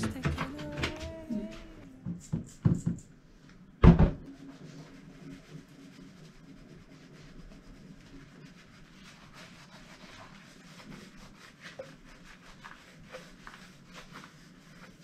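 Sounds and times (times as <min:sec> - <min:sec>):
low steady hum: 0:00.0 - 0:02.5
sponge scrubbing a glass: 0:04.3 - 0:15.0.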